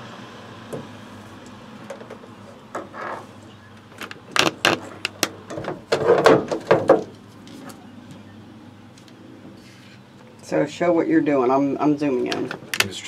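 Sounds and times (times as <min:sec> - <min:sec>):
sharp clicks and rattles: 0:01.8 - 0:07.6, 0:12.2 - 0:13.0
loud knocks: 0:05.5 - 0:07.1.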